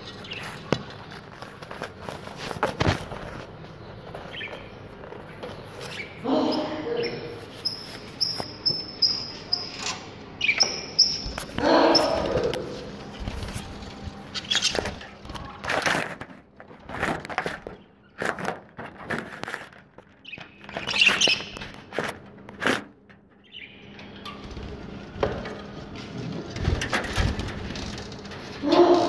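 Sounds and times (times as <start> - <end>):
rustles and knocks: 0.0 - 6.0, 11.2 - 23.3, 24.2 - 29.0
budgerigars chirping: 5.8 - 12.3, 14.3 - 15.1.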